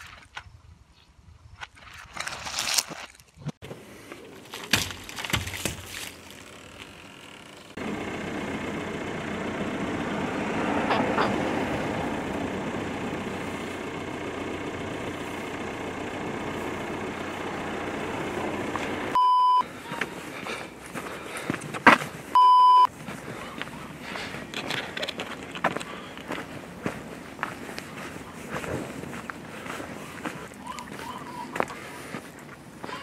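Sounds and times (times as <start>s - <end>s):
car engine running: 3.6s - 33.0s
short high beeps: 19.2s - 19.7s, 22.4s - 22.9s.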